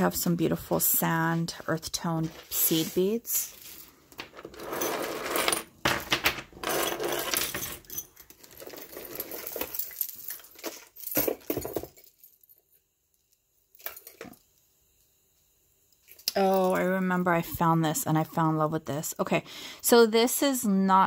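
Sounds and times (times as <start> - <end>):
jewelry clinking and rattling: 2.1 - 12.8, 16.0 - 17.2.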